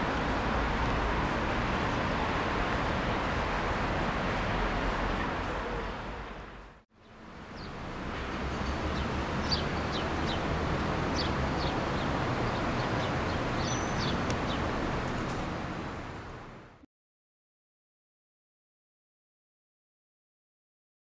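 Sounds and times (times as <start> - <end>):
small birds chirping: 8.5 - 15.2.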